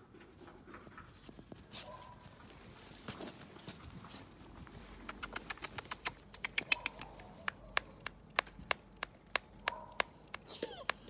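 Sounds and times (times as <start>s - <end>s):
sharp clicks: 5.0s - 11.0s.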